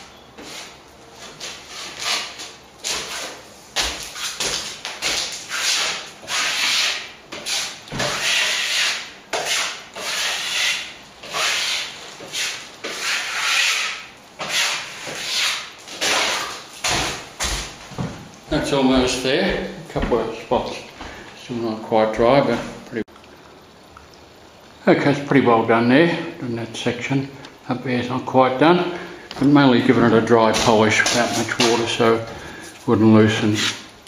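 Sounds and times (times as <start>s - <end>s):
trowel scraping plaster: 0.4s - 3.4s, 4.1s - 17.3s, 30.5s - 32.0s, 33.4s - 33.9s.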